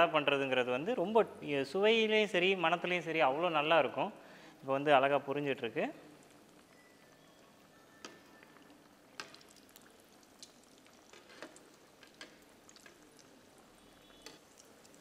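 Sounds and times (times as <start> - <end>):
food sizzling in oil: 6.0 - 15.0
oil crackling and popping: 6.1 - 15.0.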